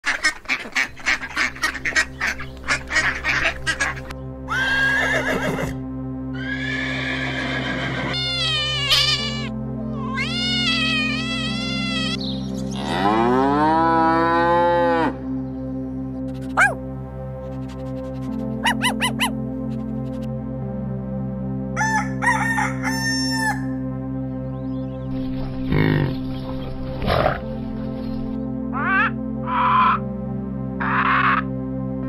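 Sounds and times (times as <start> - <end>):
duck quacking: 0.0 - 4.1, 17.9 - 19.4, 28.8 - 30.0, 30.8 - 31.5
background music: 0.0 - 32.0
drawn-out animal calls: 6.4 - 12.2, 17.8 - 19.4
cow mooing: 12.7 - 15.2.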